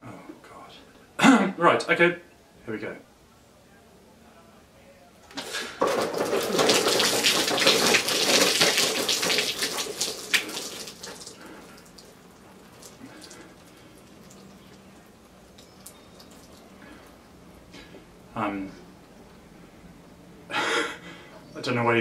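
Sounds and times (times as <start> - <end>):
milk splashing and pattering: 5.4 - 17.3.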